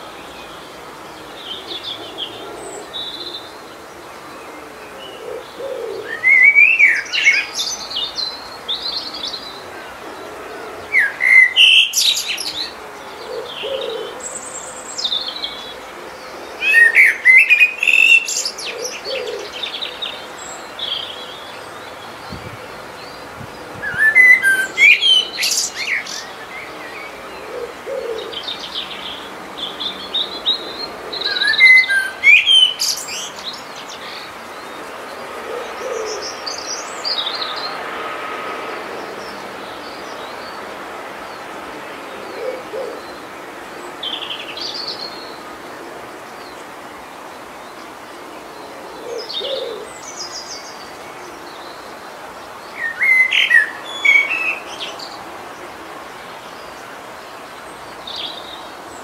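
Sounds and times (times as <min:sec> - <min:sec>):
songbird chirping: 0:00.0 - 0:59.0.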